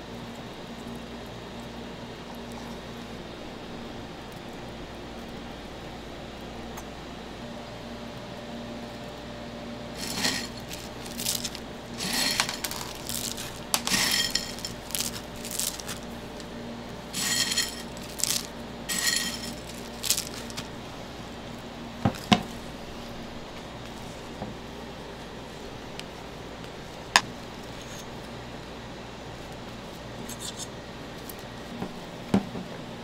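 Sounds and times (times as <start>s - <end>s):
cereal rustling into a bowl: 9.9s - 20.8s.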